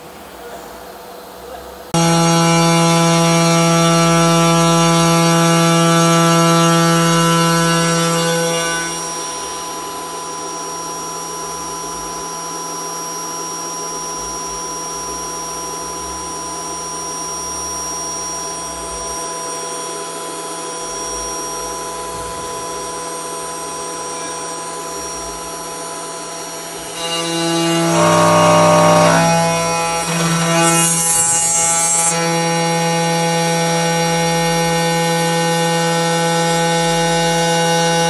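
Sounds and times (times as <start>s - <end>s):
milling machine spindle whirring: 17.1s - 38.0s.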